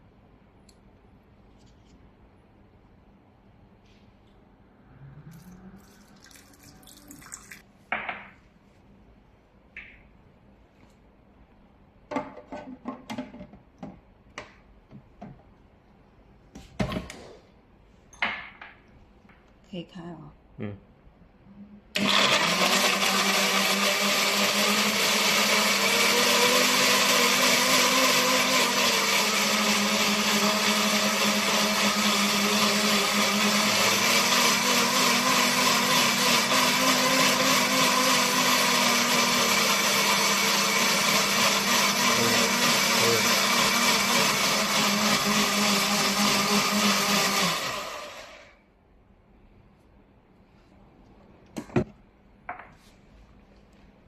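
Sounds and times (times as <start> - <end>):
blender running: 22.0 - 48.6.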